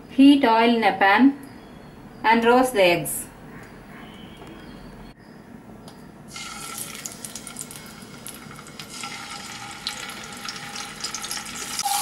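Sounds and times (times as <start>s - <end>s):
eggs sizzling in hot oil: 6.3s - 12.0s.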